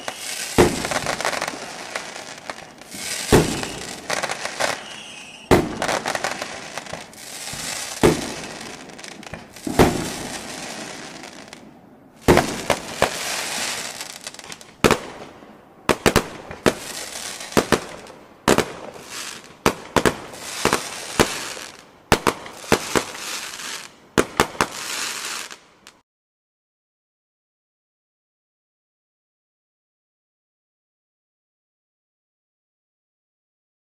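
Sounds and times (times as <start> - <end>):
fireworks hissing and popping: 0.0 - 11.6, 12.2 - 15.3, 15.9 - 26.0.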